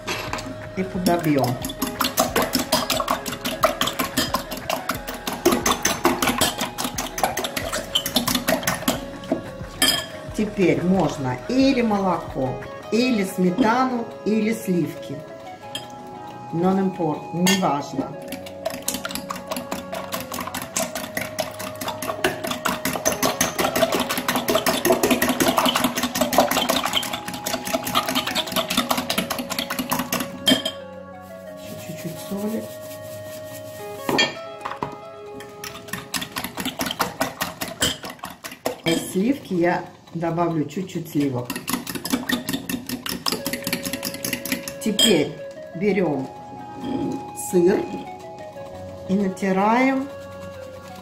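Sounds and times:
metal fork clinking against glass bowl: 0:01.4 - 0:09.0, 0:09.8 - 0:10.2, 0:18.4 - 0:30.8
fork clicking against glass bowl: 0:41.5 - 0:44.8.

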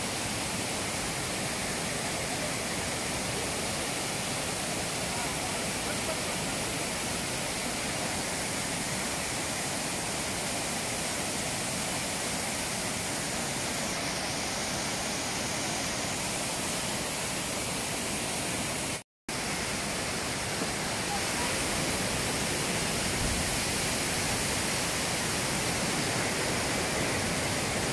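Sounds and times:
waterfall rushing: 0:00.0 - 0:27.9.

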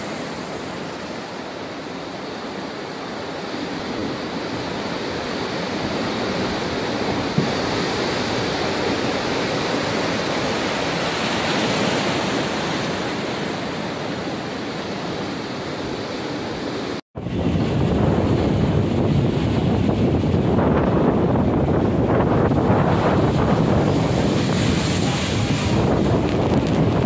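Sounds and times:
wind: 0:00.0 - 0:27.0
wind buffeting microphone: 0:03.8 - 0:12.8, 0:17.2 - 0:27.0
surf breaking on rocks: 0:17.3 - 0:27.0.

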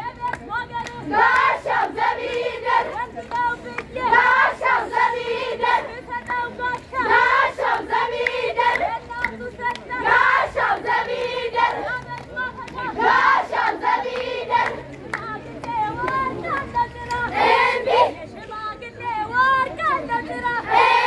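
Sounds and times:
hands clapping: 0:00.1 - 0:04.6, 0:05.8 - 0:17.3
girls singing together: 0:01.0 - 0:18.2, 0:19.4 - 0:21.0.

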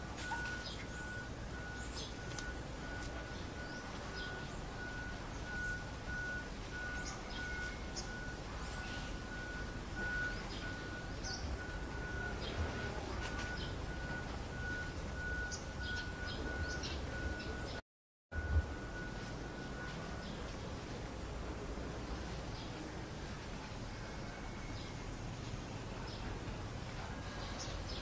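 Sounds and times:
low background hum: 0:18.4 - 0:28.0.

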